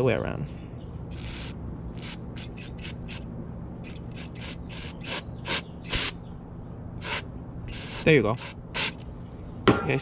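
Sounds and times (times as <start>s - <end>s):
aerosol spray spurts: 7.0s - 9.0s.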